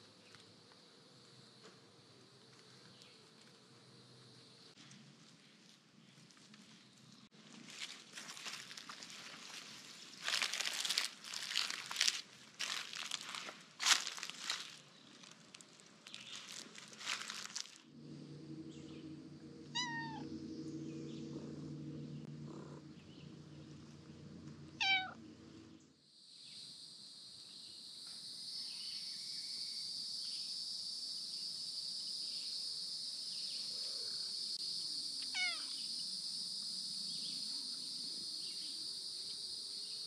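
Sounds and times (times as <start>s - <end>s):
low steady hum: 8.4s - 26.0s
high insect buzz: 16.1s - 40.0s
cat meowing: 19.7s - 20.3s, 24.8s - 25.2s, 35.4s - 35.8s.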